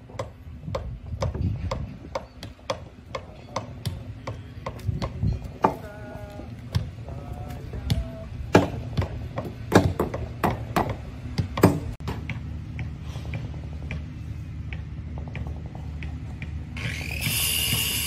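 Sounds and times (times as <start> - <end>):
steady low hum: 0.0 - 18.0
high whine: 13.9 - 18.0.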